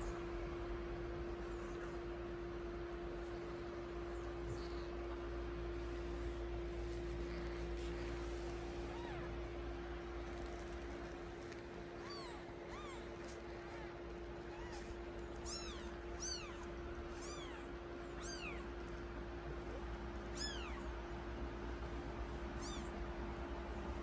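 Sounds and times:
kittens mewing: 5.9s - 9.8s, 11.4s - 21.1s, 22.4s - 23.3s.

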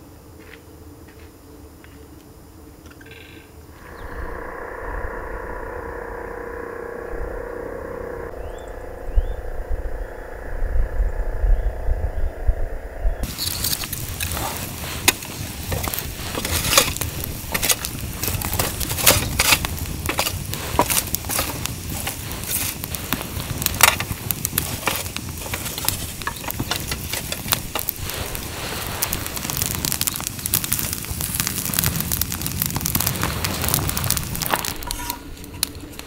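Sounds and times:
low steady rumble: 3.7s - 36.0s
wood fire crackling: 13.2s - 36.0s.

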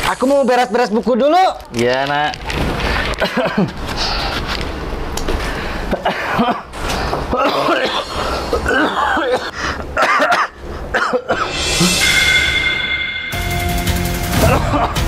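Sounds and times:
man coughing: 5.9s - 6.7s, 7.3s - 12.0s, 14.4s - 15.0s.

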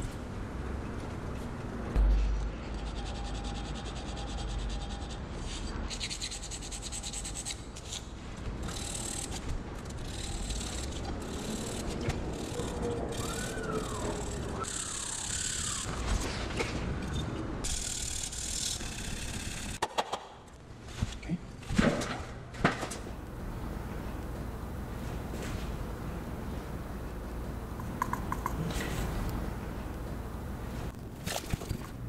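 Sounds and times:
sandpaper rubbing on ceramic: 2.8s - 7.6s.

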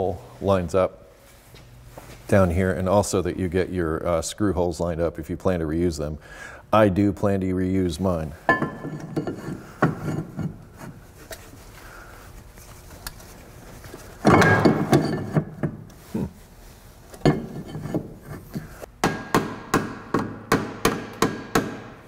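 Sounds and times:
metal clunks: 14.2s - 15.8s.

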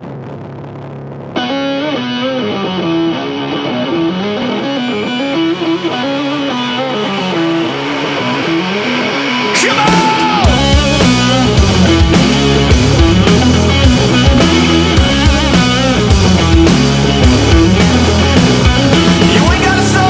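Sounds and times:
electric guitar riff: 0.0s - 20.0s
rock band playing: 1.4s - 20.0s.

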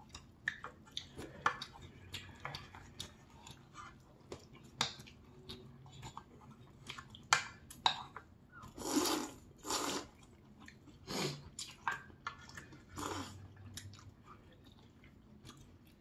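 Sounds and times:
wet chewing clicks: 0.0s - 16.0s
noodles being slurped: 8.6s - 10.3s, 10.9s - 12.0s, 12.6s - 13.9s.

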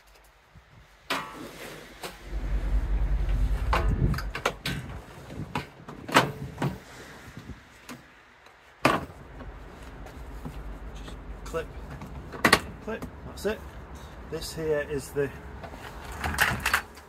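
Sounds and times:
wind buffeting microphone: 2.2s - 7.8s.

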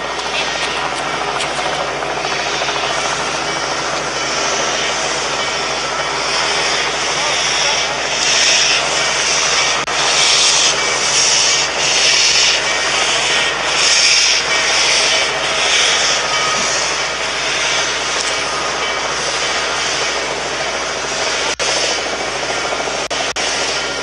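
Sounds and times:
steam locomotive hissing exhaust: 0.0s - 24.0s.

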